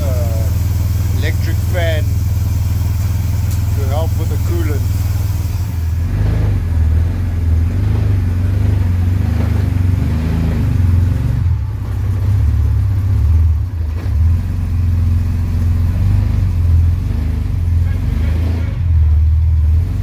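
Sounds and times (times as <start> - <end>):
car engine running: 0.0 - 20.0.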